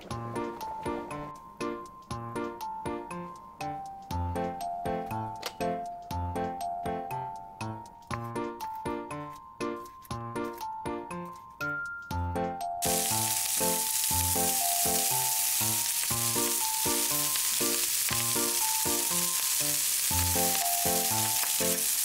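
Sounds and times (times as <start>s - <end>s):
sausage sizzling in frying pan: 12.8s - 22.0s.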